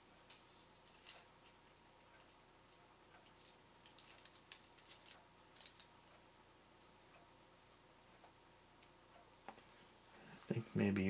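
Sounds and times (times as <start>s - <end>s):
plastic parts clicking and tapping: 3.2s - 5.9s.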